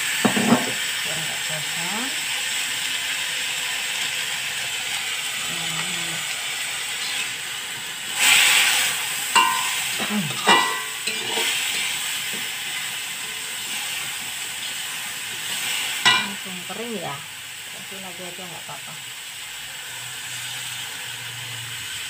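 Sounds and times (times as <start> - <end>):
food sizzling in wok: 0.0 - 22.0
spatula stirring in wok: 6.4 - 16.4
spatula clanking against wok: 9.3 - 11.5, 16.0 - 16.4.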